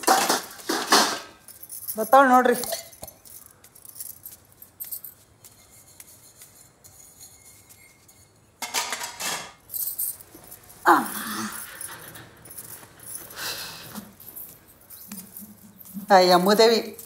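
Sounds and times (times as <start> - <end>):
dishes clattering: 0.0 - 1.6, 7.0 - 9.6
steel dishes clinking: 5.6 - 10.0.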